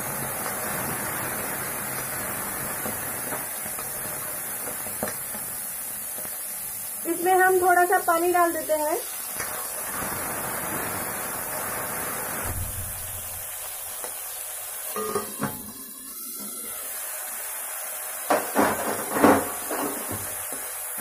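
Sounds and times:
peas sizzling in hot oil: 0.0s - 21.0s
metal pan lid and ladle clinks: 15.0s - 15.6s.

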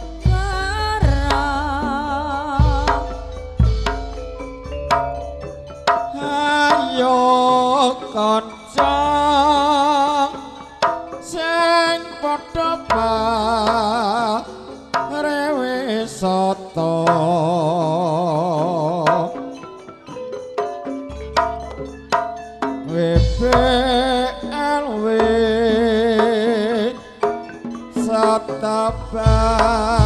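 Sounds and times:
hand drum strokes: 0.0s - 8.1s, 20.7s - 30.0s
gamelan music: 0.0s - 30.0s
person singing wavering held notes: 6.0s - 19.6s.

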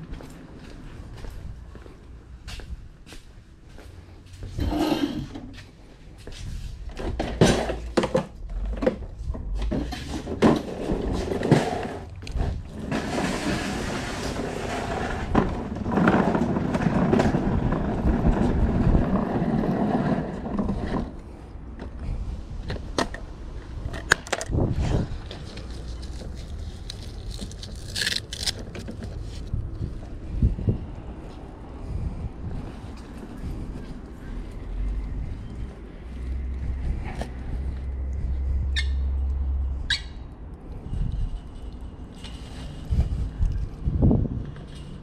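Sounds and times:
small wheels rolling over asphalt: 7.0s - 21.4s, 22.0s - 30.4s.

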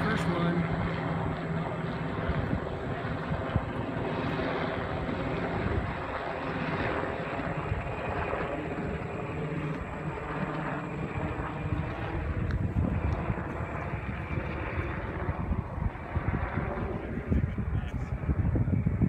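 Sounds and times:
helicopter flying overhead: 0.0s - 19.0s.

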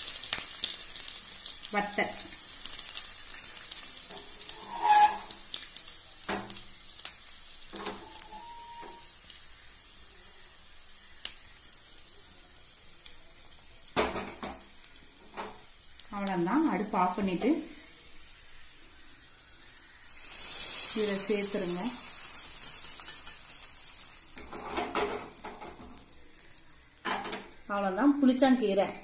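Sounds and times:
hot oil sizzling and popping: 0.0s - 29.0s.

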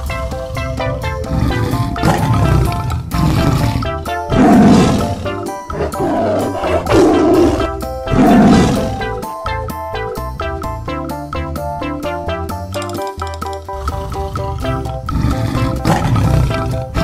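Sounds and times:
tiger roaring: 0.0s - 9.2s, 13.7s - 17.0s
background music: 0.0s - 17.0s.

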